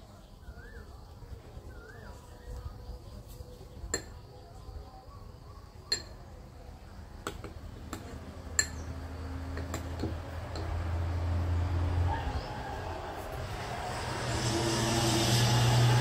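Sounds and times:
metal spoon clinking ceramic bowl: 5.9 - 6.2, 8.5 - 8.9
low rumble: 10.8 - 16.0.

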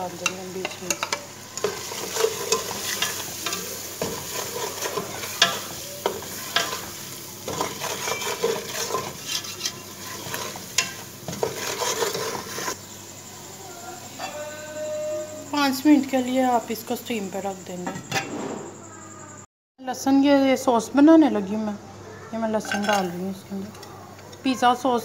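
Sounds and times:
chicken sizzling in oil: 0.0 - 16.2
spatula scraping metal pot: 0.2 - 12.8, 22.6 - 23.2.

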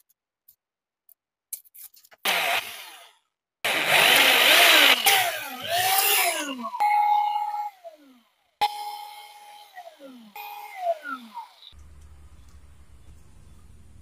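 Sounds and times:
electric drill boring: 2.2 - 11.8.

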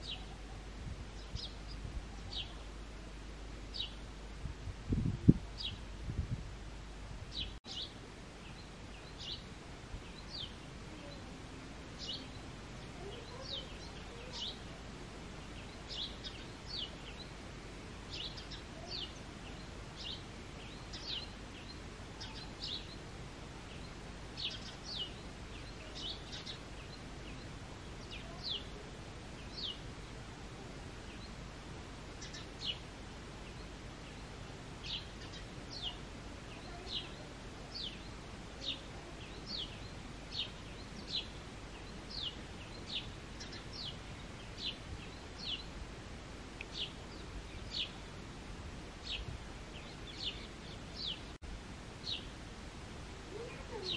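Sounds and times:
low background noise: 0.0 - 53.9
sparrow chirping: 12.0 - 14.6, 18.1 - 23.0, 23.7 - 28.8, 32.1 - 45.7.

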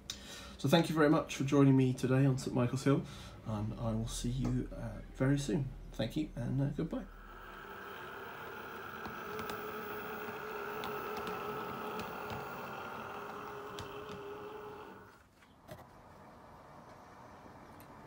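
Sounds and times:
model train motor humming: 7.2 - 15.1
light clicks from wheels and track: 8.4 - 15.0.

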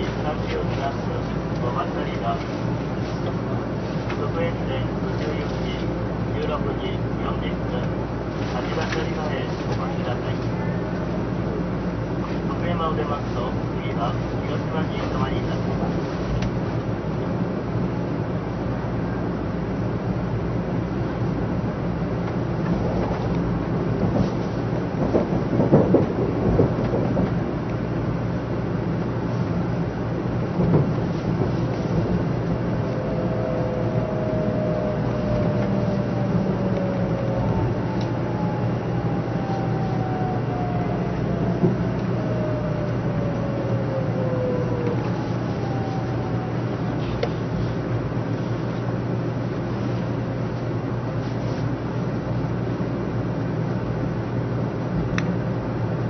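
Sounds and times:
train running rumble: 0.0 - 56.0
faint braking whine: 31.0 - 51.8.

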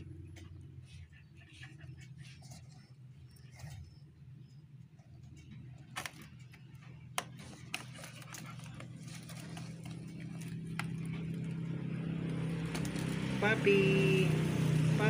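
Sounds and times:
low engine hum: 0.0 - 15.0
palm-leaf basket crackling: 5.8 - 15.0.

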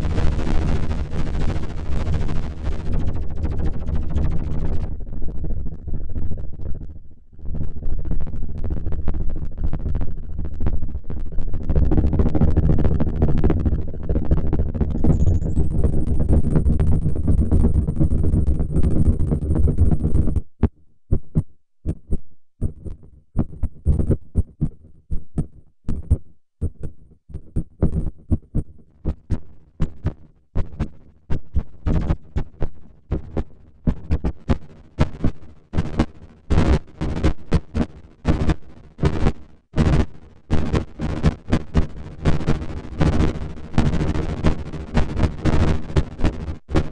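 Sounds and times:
synthesized helicopter rotor: 15.0 - 15.8.

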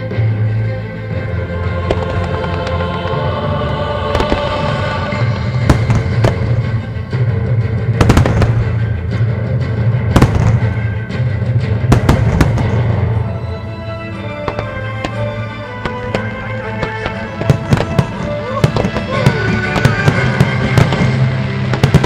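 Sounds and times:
music with deep bass: 0.0 - 22.0
firework bangs: 1.8 - 2.8, 4.0 - 7.0, 7.9 - 9.0, 10.0 - 11.0, 11.8 - 13.3, 14.1 - 22.0.

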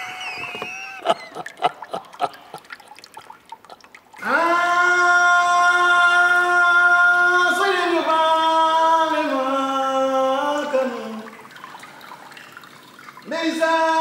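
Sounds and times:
solo voice singing: 4.2 - 11.4.

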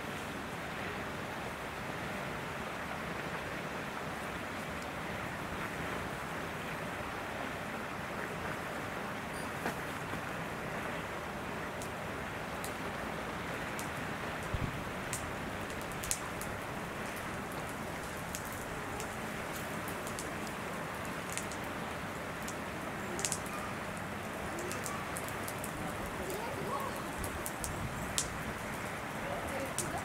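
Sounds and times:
outdoor background hiss: 0.0 - 30.0
faint sharp clicks: 23.2 - 23.5, 27.2 - 28.4.

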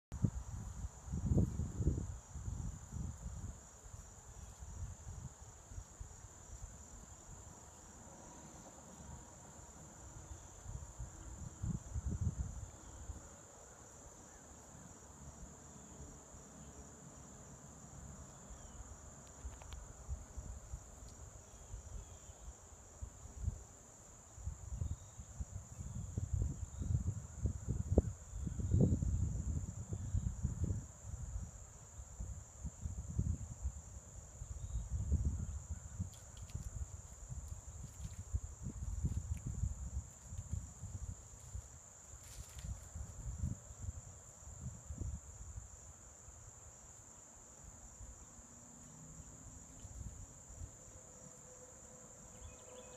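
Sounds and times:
insects chirping: 0.2 - 52.9
wind buffeting microphone: 24.5 - 33.8, 34.4 - 41.7.

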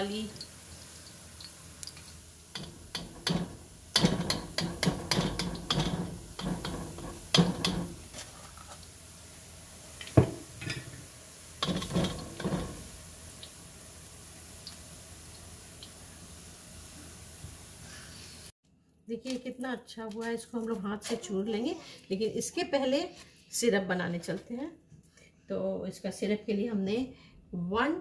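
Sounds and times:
food frying in oil: 0.0 - 18.5.

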